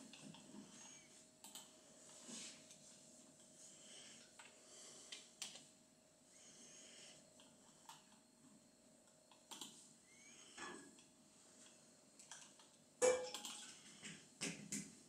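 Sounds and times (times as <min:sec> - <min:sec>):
faint steady hum: 0:00.0 - 0:15.0
computer keyboard typing: 0:01.4 - 0:01.7, 0:09.3 - 0:09.8, 0:12.2 - 0:13.7
mouse clicking: 0:09.3 - 0:09.8.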